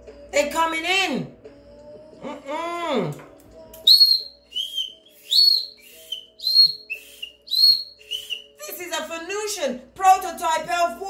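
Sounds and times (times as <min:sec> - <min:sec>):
high-pitched whistle notes: 0:03.8 - 0:08.6.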